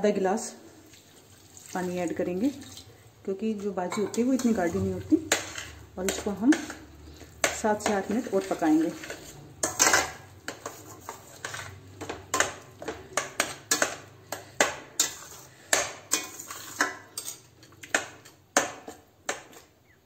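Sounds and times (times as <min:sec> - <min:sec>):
metal spatula scraping a pot: 0:03.8 - 0:19.7.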